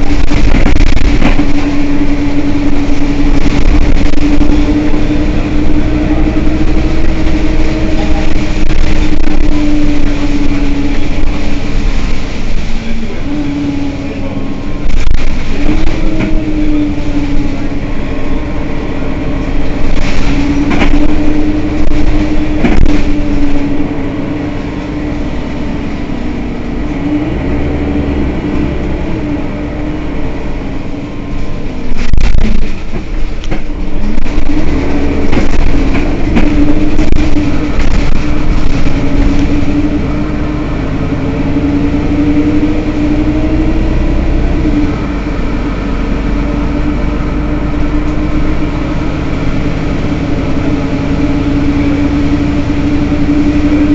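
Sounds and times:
knocks and clatters: 0.0 - 1.8, 19.8 - 23.6, 31.9 - 39.7
bus diesel engine idling: 0.0 - 53.9.

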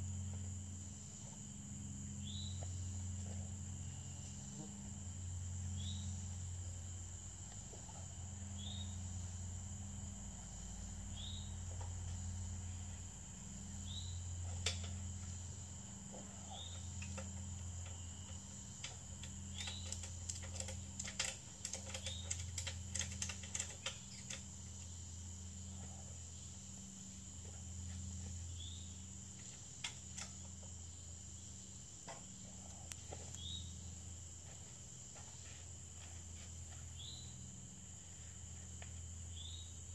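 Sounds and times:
crickets and insects chorus: 0.0 - 39.9
metallic clicks and rattles: 18.8 - 24.5.

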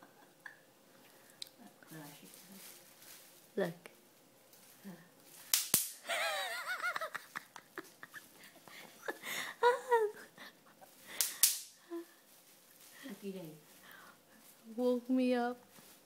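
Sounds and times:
bubble wrap popping: 1.8 - 8.1, 11.1 - 13.8
person speaking: 13.0 - 13.8.

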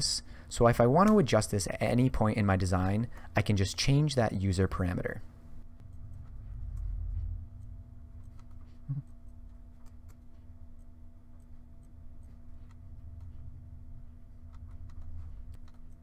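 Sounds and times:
low electrical hum: 0.0 - 16.0
computer mouse clicks: 8.2 - 13.3, 14.4 - 16.0.

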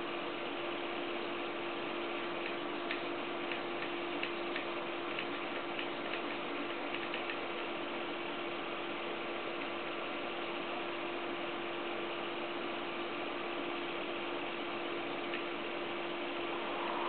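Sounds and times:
light ticks: 2.4 - 7.7
stepper motors humming: 16.1 - 17.0.

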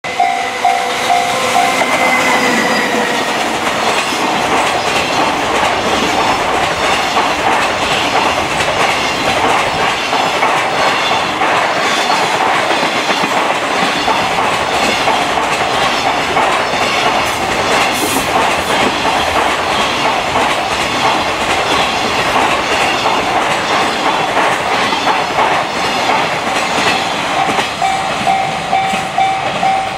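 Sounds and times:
locomotive whine: 0.0 - 9.8
train wheels clickety-clack on rails: 0.0 - 29.9.

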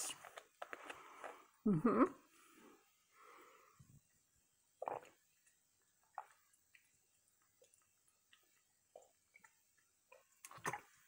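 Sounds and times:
person gulping and swallowing: 4.8 - 11.0.

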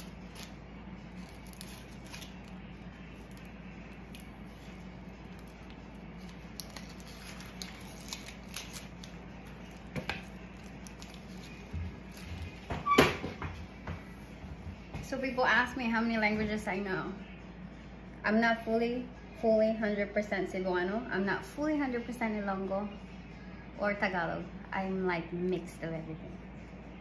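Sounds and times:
onion skin crackling and tearing: 0.0 - 12.7
steady low hum: 0.0 - 27.0.

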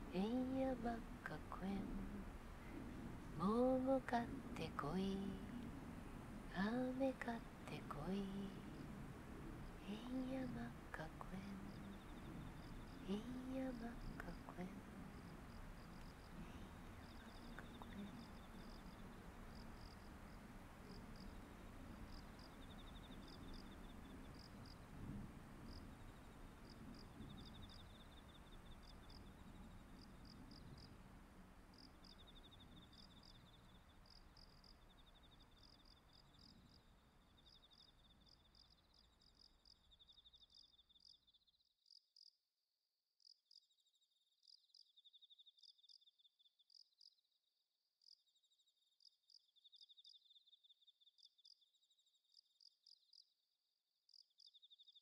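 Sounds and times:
low background noise: 0.0 - 40.7
insects chirping and trilling: 0.0 - 42.3, 43.2 - 47.2, 48.0 - 53.3, 54.1 - 55.0.

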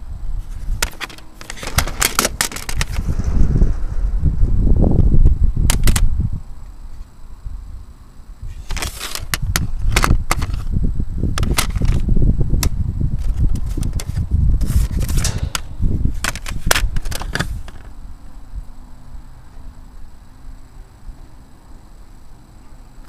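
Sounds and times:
camera handling rumble: 0.4 - 3.5, 5.6 - 6.1, 8.5 - 18.0
sharp clicks and knocks: 14.8 - 17.9.

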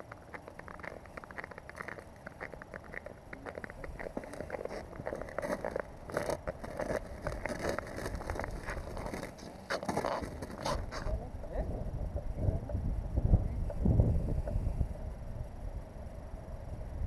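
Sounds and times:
boots stepping on ice: 0.0 - 11.1
gear clicking on ice: 0.0 - 11.1.

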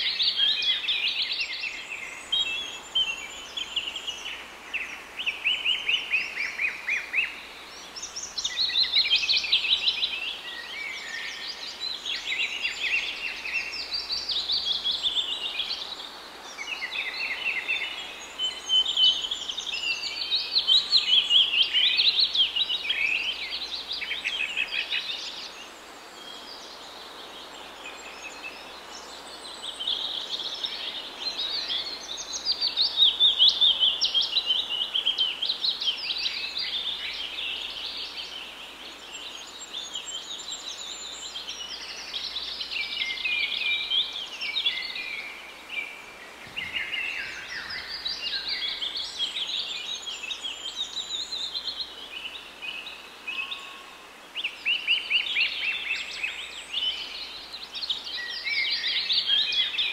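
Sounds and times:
birds chirping and singing: 27.8 - 59.9.

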